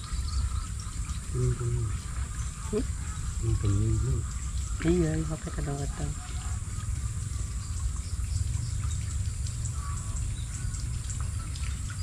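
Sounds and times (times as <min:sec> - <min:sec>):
high-pitched insect drone: 0:03.0 - 0:04.4.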